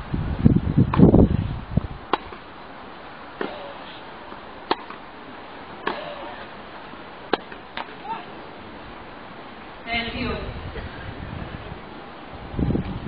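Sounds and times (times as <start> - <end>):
racquet striking tennis ball: 2.1 - 2.5, 3.4 - 8.4.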